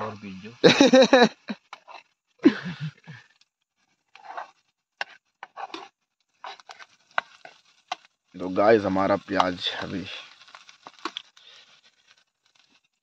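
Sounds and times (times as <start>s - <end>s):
spoon scraping metal pan: 1.6s - 2.1s, 4.1s - 8.1s.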